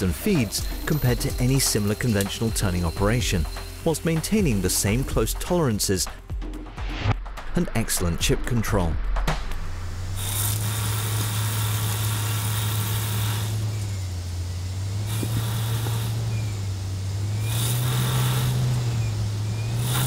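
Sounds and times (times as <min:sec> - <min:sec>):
lathe spindle hum: 0:00.0 - 0:05.5, 0:10.0 - 0:20.0
hissing metal cutting: 0:00.0 - 0:06.2, 0:09.6 - 0:20.0.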